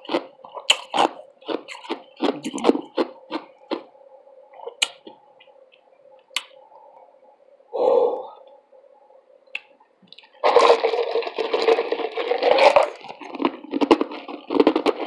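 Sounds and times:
ice crunching between teeth: 0.0s - 3.9s, 10.2s - 15.0s.

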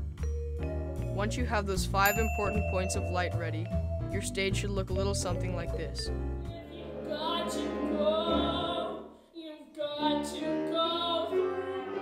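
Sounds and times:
instrumental accompaniment: 0.0s - 9.1s
woman singing with vibrato: 6.6s - 9.1s.

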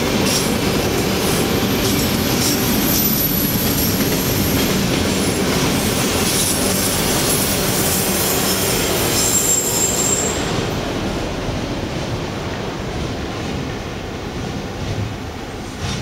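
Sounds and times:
train wheels rumbling on rail: 0.0s - 16.0s
high-pitched wheel squeal: 9.0s - 10.6s.

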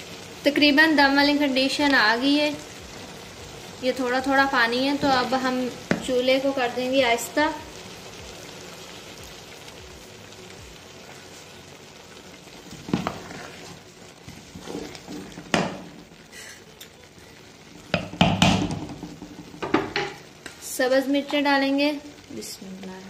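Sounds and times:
low sizzle: 0.0s - 23.0s
wooden spoon scraping metal pot: 12.7s - 15.5s.

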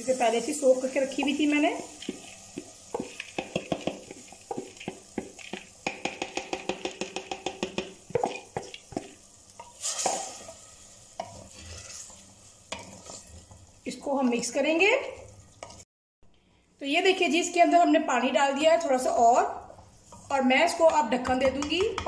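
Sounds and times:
wooden spoon stirring wet lentils: 0.0s - 10.6s, 11.2s - 15.8s
bowl tapping and scraping against pot: 2.0s - 9.2s.

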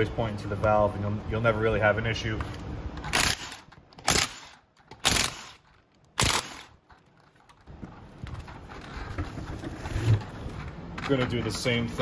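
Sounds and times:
plastic wheel cover handling: 6.8s - 11.6s.

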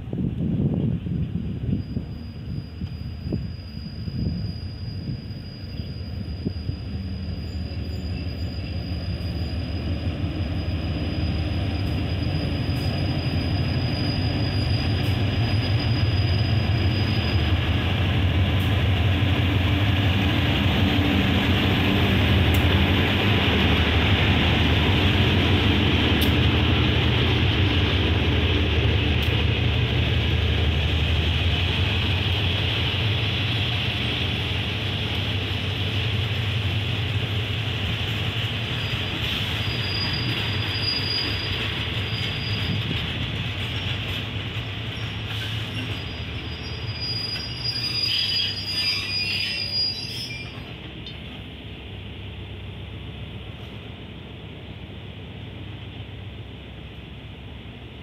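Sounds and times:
locomotive engine humming: 0.3s - 47.9s, 49.9s - 58.0s
train coaches rolling: 0.6s - 58.0s
wheel and brake squeal: 1.5s - 17.8s, 38.6s - 44.2s, 44.9s - 50.8s.

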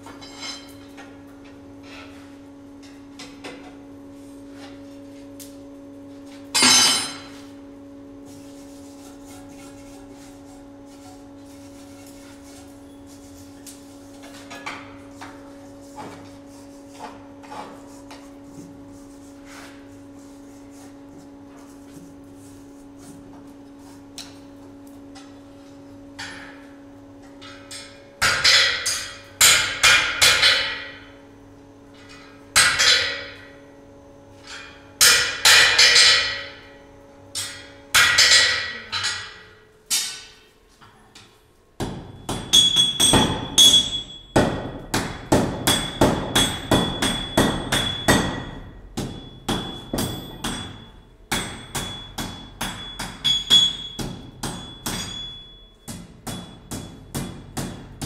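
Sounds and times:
hammer striking steel on anvil: 6.6s - 7.3s, 27.4s - 31.1s, 32.0s - 33.5s, 34.5s - 36.7s, 37.3s - 40.4s, 41.8s - 58.0s.

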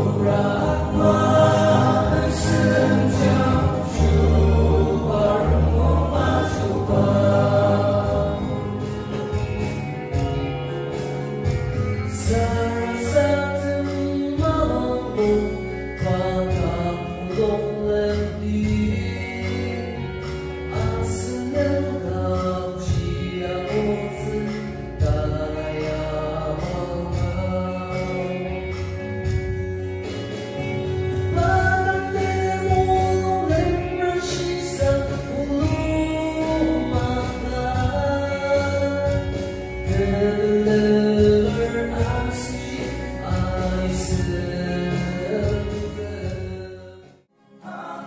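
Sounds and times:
choir singing a hymn: 0.0s - 8.8s
low bass line: 0.0s - 47.0s
instrumental accompaniment: 0.0s - 48.0s.

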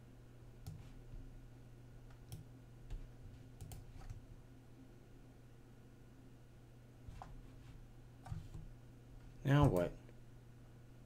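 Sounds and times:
computer mouse clicks: 0.6s - 0.9s, 2.1s - 4.2s, 8.2s - 8.7s.

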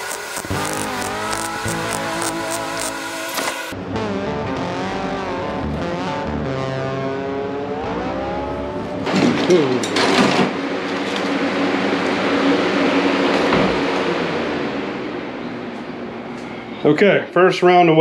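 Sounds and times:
box fan whirring: 0.0s - 3.7s
music with sustained notes: 0.5s - 9.1s.

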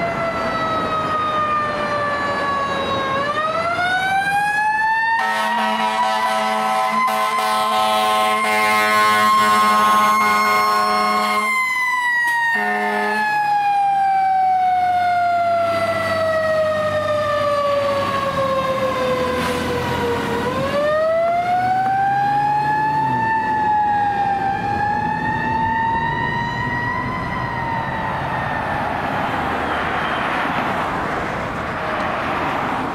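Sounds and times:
mechanical siren wailing: 0.0s - 30.3s
traffic noise: 0.0s - 32.9s
horn blast: 5.2s - 11.5s, 12.6s - 13.2s
truck engine: 12.2s - 32.9s.

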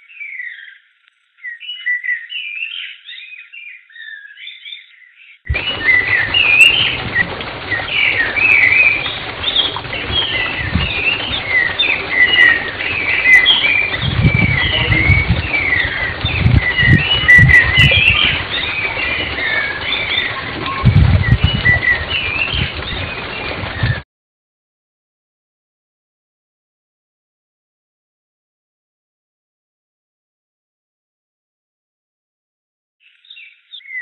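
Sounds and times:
small birds chirping: 0.0s - 24.0s, 33.0s - 34.0s
low rumbling bursts: 5.5s - 24.0s.

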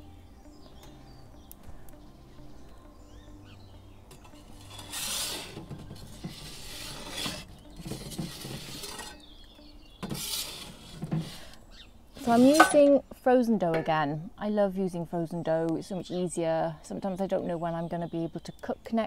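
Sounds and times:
metal peel scraping stone: 4.1s - 9.4s, 10.0s - 13.0s.

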